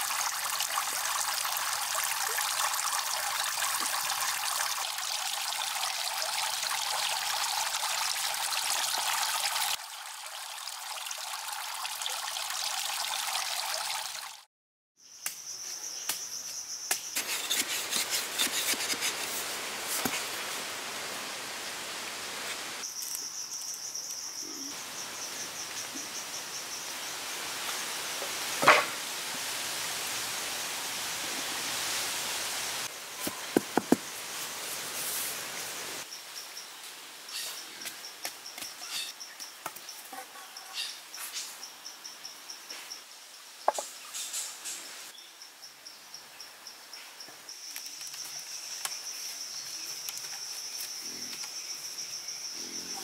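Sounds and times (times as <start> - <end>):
insects trilling: 22.8 - 28.0, 45.2 - 53.0.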